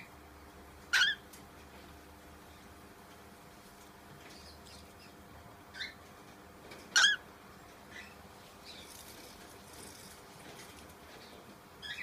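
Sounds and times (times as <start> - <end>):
cockatiel chirping: 0.9 - 1.2.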